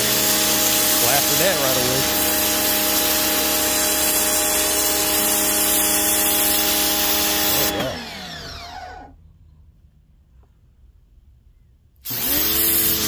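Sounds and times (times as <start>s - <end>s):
water jet hissing on concrete: 0.0s - 7.8s
pressure washer motor whine: 0.0s - 9.2s.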